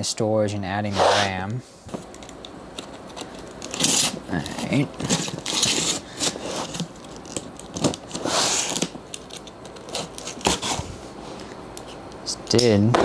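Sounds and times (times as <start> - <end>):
box cutter slicing packing tape: 3.7 - 4.2, 8.2 - 8.9, 9.9 - 10.8.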